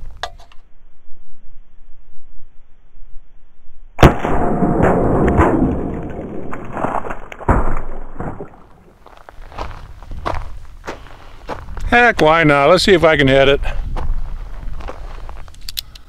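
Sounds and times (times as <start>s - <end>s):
revolver gunshot: 4.0s - 8.8s
sharp crack: 4.0s - 9.8s.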